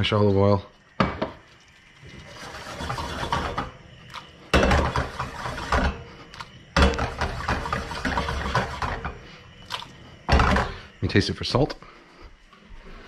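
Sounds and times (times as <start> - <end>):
pan scraping and knocking: 1.0 - 3.8, 4.5 - 6.1, 6.8 - 9.2, 10.3 - 10.8.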